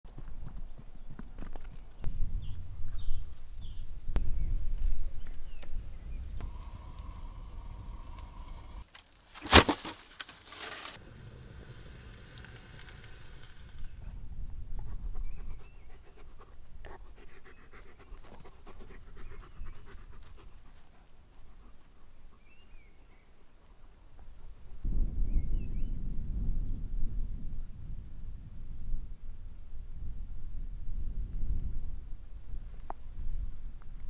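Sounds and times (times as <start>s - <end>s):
dog panting: 14.8s - 22.4s.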